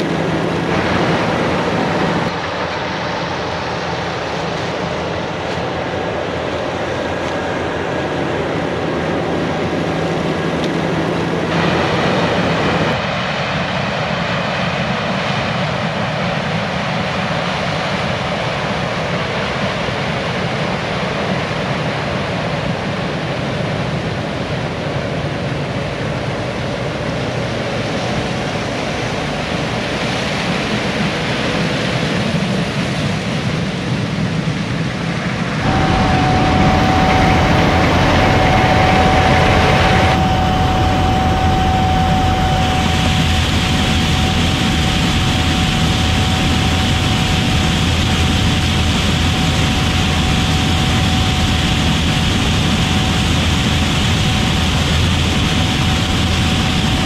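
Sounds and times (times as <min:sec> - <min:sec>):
farm machinery engines running: 0:00.0 - 0:13.4, 0:35.6 - 0:57.0
steady tone: 0:35.6 - 0:57.0.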